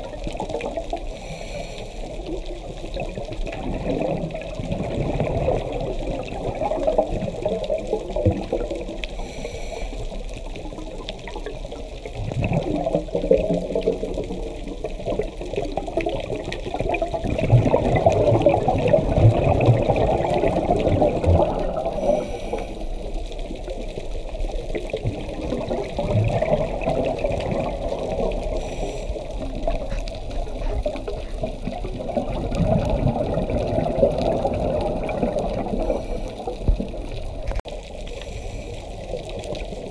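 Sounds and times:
scuba regulator bubbles underwater: 0.0 - 39.9
high hiss of inhaling: 1.1 - 2.3, 9.2 - 10.2, 22.0 - 23.1, 28.5 - 31.4, 38.1 - 39.0.

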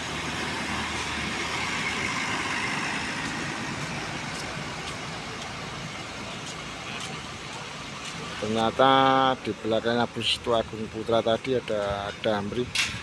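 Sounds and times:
bus driving past: 0.0 - 13.0.

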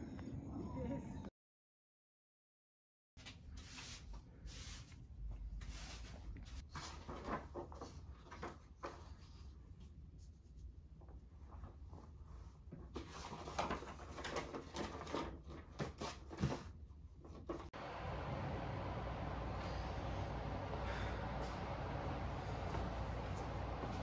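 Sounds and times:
paper rustling: 5.7 - 9.2, 12.9 - 16.7.

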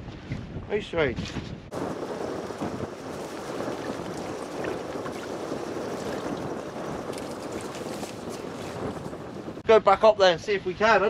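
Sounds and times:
water lapping against boat hull: 1.7 - 9.6.

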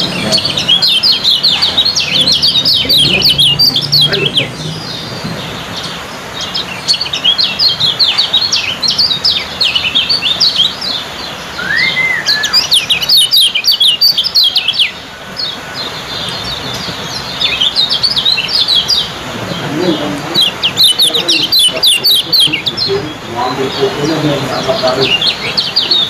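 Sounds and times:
bird chattering song: 0.0 - 26.0
low slurred bird whistle: 11.5 - 14.9.

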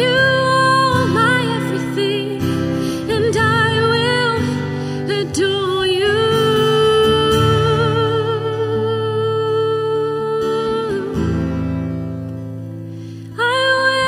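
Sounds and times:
woman singing with vibrato: 0.0 - 11.8, 13.3 - 14.0
acoustic guitar: 0.0 - 14.0.

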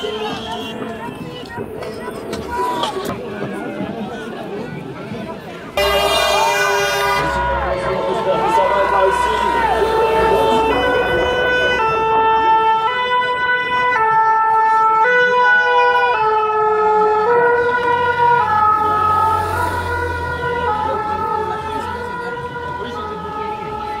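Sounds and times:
vehicle engine: 5.8 - 12.7, 17.3 - 24.0
two-tone emergency siren: 5.8 - 24.0.

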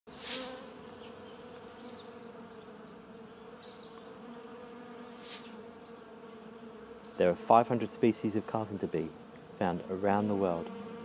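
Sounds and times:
short hissing whoosh: 0.1 - 0.5, 5.2 - 5.6
bee buzzing: 0.1 - 11.0.

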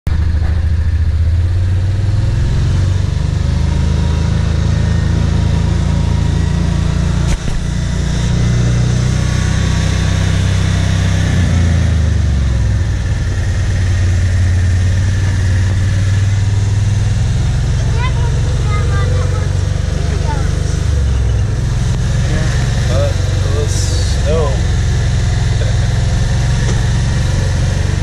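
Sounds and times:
off-road vehicle engine running: 0.0 - 28.0.

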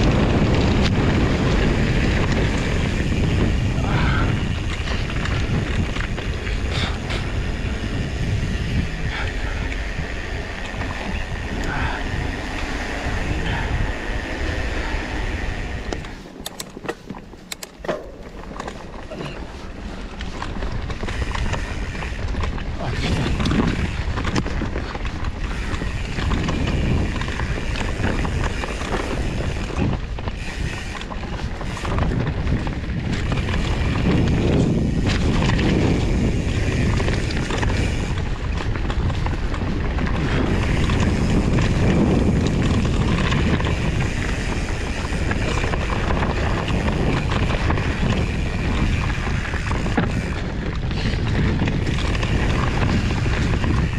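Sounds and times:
bike rumbling on a trail: 0.0 - 53.9
wind buffeting microphone: 0.0 - 53.9
bike knocks and rattles: 15.8 - 53.9.

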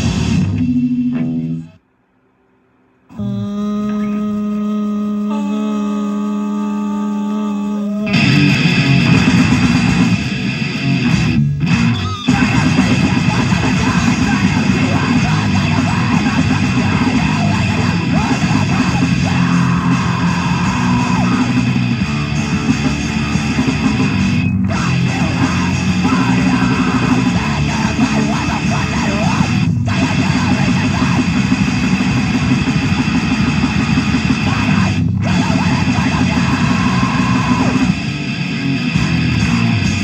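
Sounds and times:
distorted heavy band music: 0.0 - 1.8, 8.0 - 40.0
electric guitar: 0.0 - 1.8, 3.1 - 40.0.

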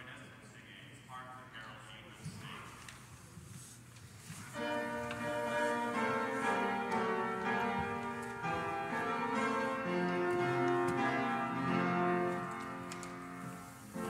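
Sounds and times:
church organ sustained chords: 4.3 - 14.0.

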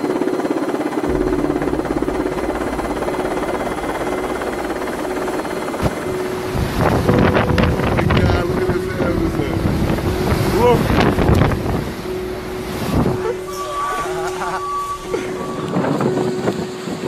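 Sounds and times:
helicopter engine and rotor: 0.0 - 6.1
wind gusting on microphone: 1.1 - 17.0.

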